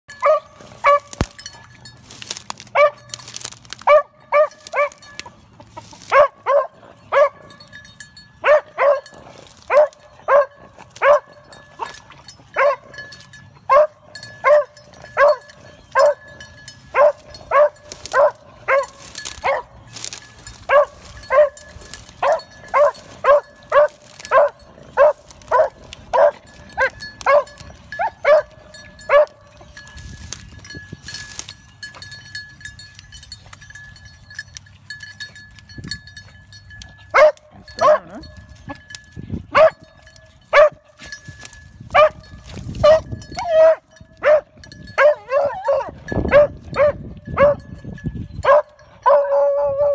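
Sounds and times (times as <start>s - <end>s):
dog barking: 0.2s - 1.2s, 2.7s - 3.1s, 3.8s - 5.0s, 6.1s - 7.4s, 8.4s - 11.9s, 12.6s - 12.9s, 13.7s - 15.4s, 16.0s - 16.2s, 16.9s - 19.7s, 20.7s - 21.6s, 22.2s - 29.4s, 37.1s - 38.3s, 39.6s - 39.8s, 40.5s - 40.8s, 42.8s - 47.6s, 48.4s - 49.9s.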